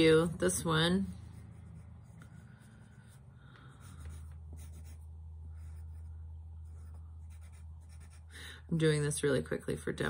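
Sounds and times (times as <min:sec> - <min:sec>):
low steady hum: 0:00.0 - 0:10.0
pencil scratching on paper: 0:00.6 - 0:08.4.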